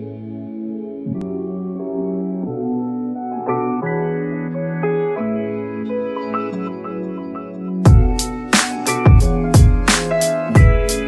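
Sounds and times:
gentle instrumental music: 0.0 - 11.0.

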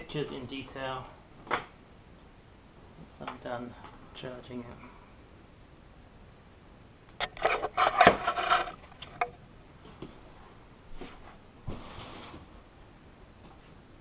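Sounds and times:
handling noise rubbing and scraping: 7.2 - 9.4, 11.0 - 12.6.

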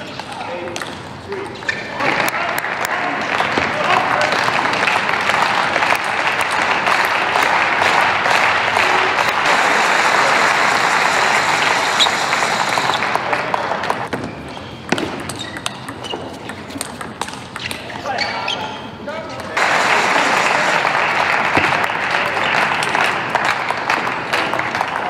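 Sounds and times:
audience applauding and cheering: 2.2 - 14.1, 19.6 - 25.0.

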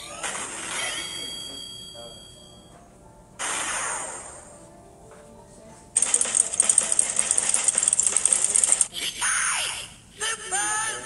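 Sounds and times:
loud fast rattling buzz: 6.0 - 8.9.

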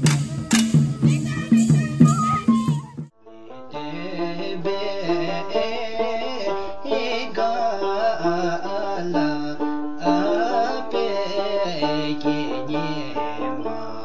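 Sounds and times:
music with moving bass line: 0.0 - 3.1.

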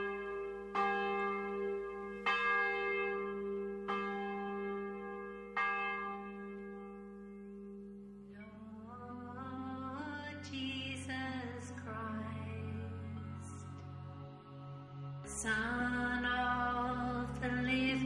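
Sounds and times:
chant-like music: 8.3 - 18.0.

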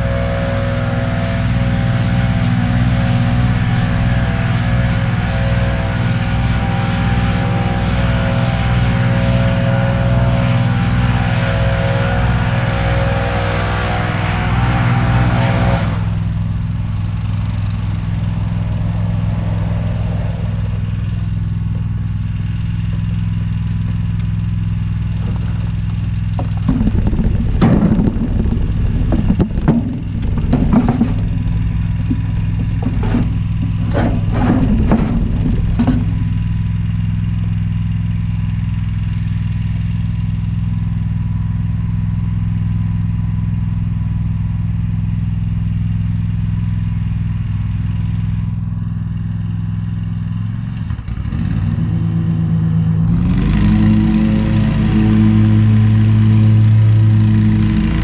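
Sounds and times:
lawn equipment engine running: 0.0 - 58.0
irregular clattering and rushing: 25.2 - 37.1.

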